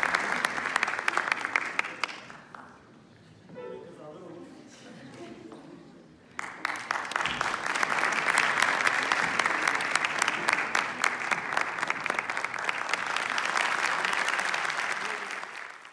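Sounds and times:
audience applauding: 0:00.0 - 0:02.8, 0:06.3 - 0:15.9.

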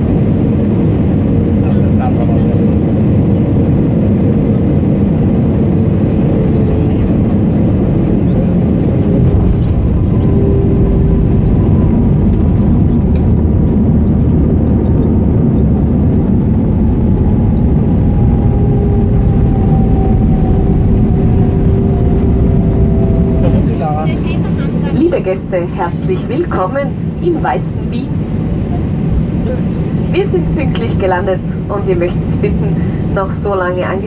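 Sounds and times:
aircraft cabin engine rumble: 0:00.0 - 0:34.0
thin engine whines: 0:06.6 - 0:25.5.

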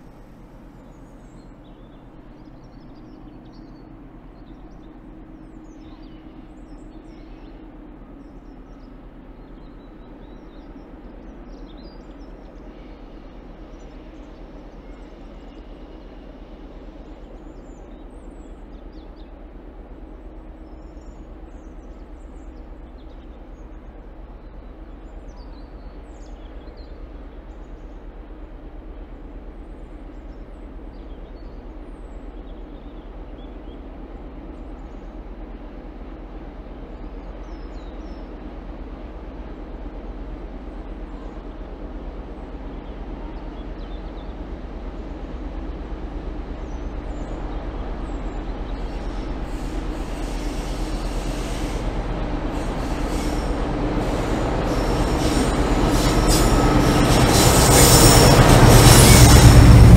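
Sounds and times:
diesel locomotive engine rumble: 0:00.0 - 0:59.9.

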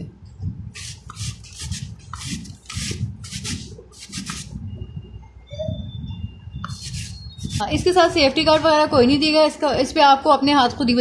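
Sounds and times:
potato grating on metal grater: 0:00.8 - 0:04.5.

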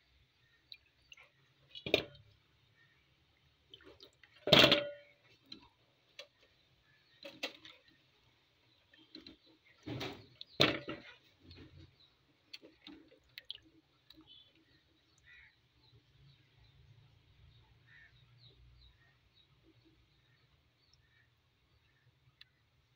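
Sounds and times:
bananas knocking into metal pot: 0:04.4 - 0:05.1, 0:09.8 - 0:11.2
metal pot ringing: 0:04.5 - 0:05.1.

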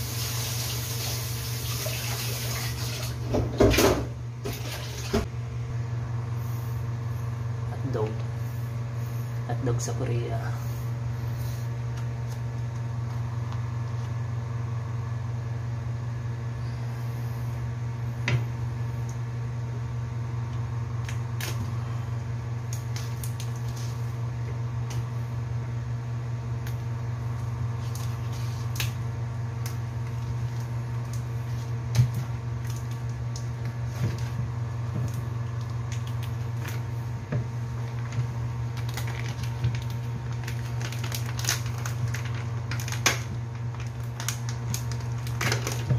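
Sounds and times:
low motor hum: 0:00.0 - 0:45.9
plastic pack crinkling: 0:37.8 - 0:45.9.

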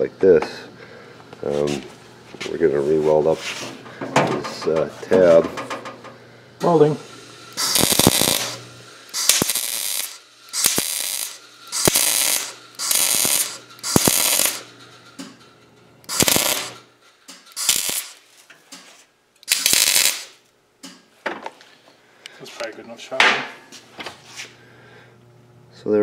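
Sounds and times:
welding arc crackling: 0:06.6 - 0:15.4, 0:16.0 - 0:18.3, 0:19.4 - 0:20.5.

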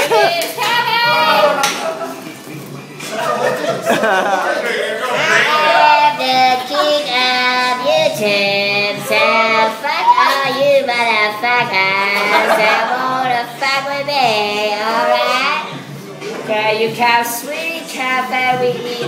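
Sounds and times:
man singing in helium voice: 0:04.6 - 0:15.8.

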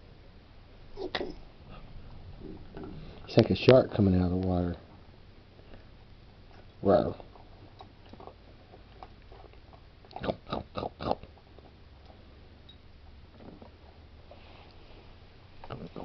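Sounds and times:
puppy chewing crunches: 0:05.7 - 0:12.3.

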